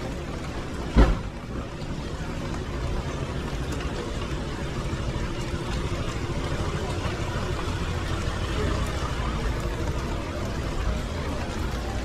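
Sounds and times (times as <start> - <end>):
steady rain on wet street: 0.0 - 12.0
loud brief thump: 1.0 - 1.3.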